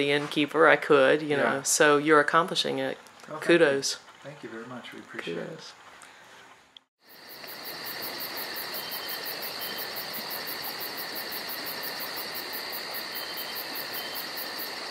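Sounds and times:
insects chirping: 0:07.0 - 0:14.9.

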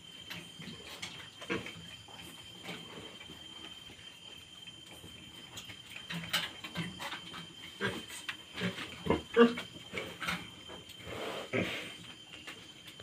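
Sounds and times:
pigs grunting and squeaking: 0:07.6 - 0:12.1.

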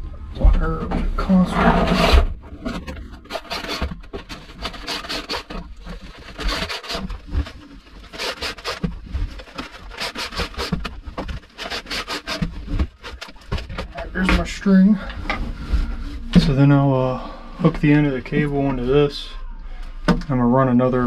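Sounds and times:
fish tape rubbing and scraping: 0:01.4 - 0:14.5.

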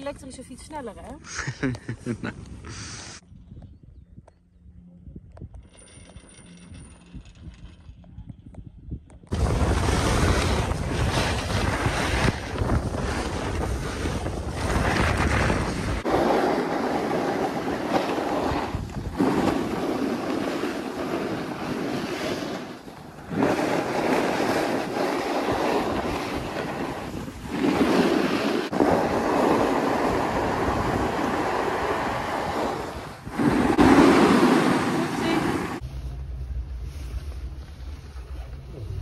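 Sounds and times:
wind rushing over microphone: 0:07.1 - 0:35.8
skis hissing and scraping on snow: 0:09.3 - 0:36.1.

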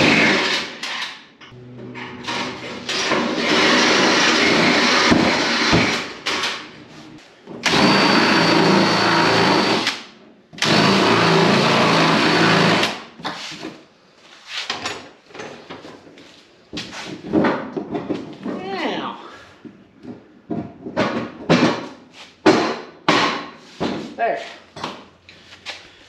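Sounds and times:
cordless drill boring through plastic: 0:07.6 - 0:09.9, 0:10.6 - 0:12.9.

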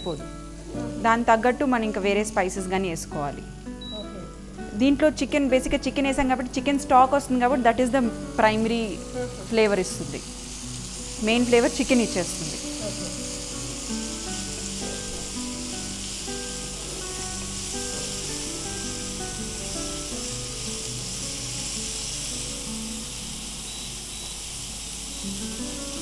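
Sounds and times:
instrumental background music: 0:00.0 - 0:26.0
chicken sizzling in a pan: 0:07.1 - 0:26.0.

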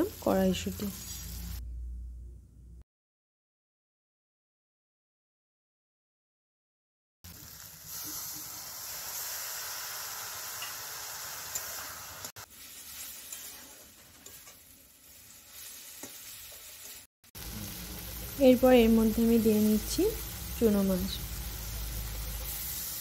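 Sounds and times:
vegetables sizzling in a pan: 0:00.0 - 0:01.6, 0:07.3 - 0:23.0
metal spatula stirring: 0:12.9 - 0:14.7.

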